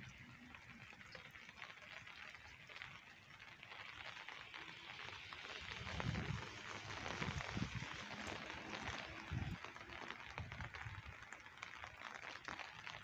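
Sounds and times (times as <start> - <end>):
rain on wet pavement and foliage: 0.0 - 13.0.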